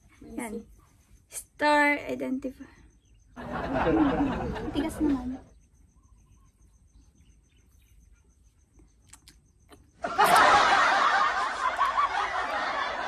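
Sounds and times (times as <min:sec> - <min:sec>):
laughter: 0:03.4 - 0:05.5, 0:10.0 - 0:13.0.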